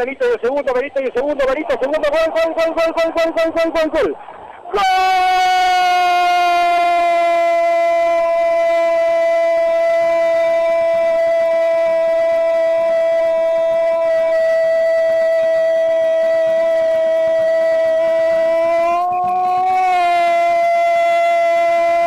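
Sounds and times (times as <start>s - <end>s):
commentator shouting: 0.0s - 9.7s.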